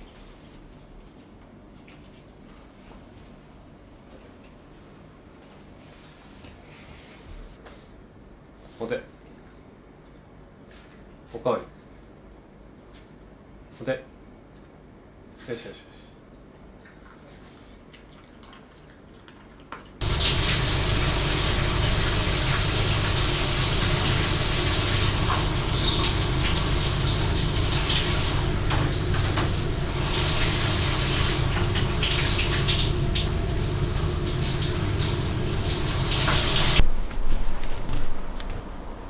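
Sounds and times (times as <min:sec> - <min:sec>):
water running: 0:20.0 - 0:36.9.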